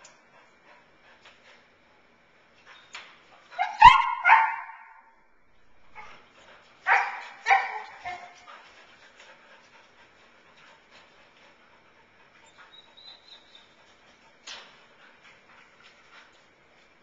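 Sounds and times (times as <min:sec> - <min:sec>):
dog barking and yelping: 0:03.5 - 0:05.0, 0:06.8 - 0:08.5.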